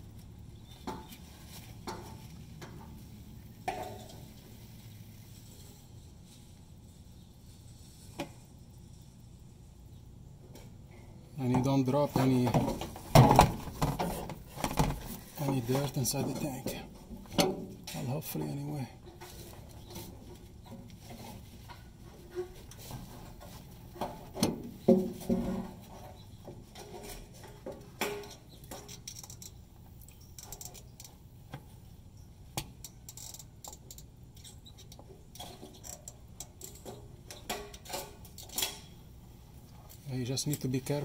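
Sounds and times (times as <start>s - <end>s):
light metallic clinks and knocks: 32.1s - 39.1s.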